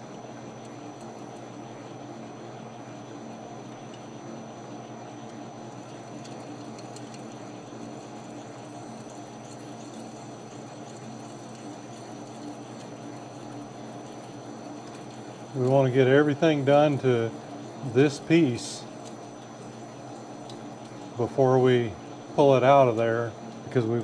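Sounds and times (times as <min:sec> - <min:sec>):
metal lathe running: 0:04.8 - 0:24.0.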